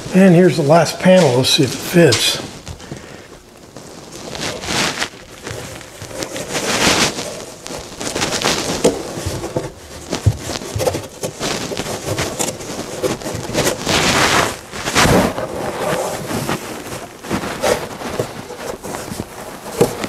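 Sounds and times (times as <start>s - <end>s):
cardboard panel scraping wood: 4.3s - 20.0s.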